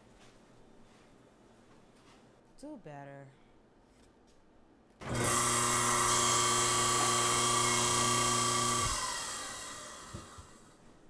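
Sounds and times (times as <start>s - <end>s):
small electric motor whirring: 5.0s - 10.7s.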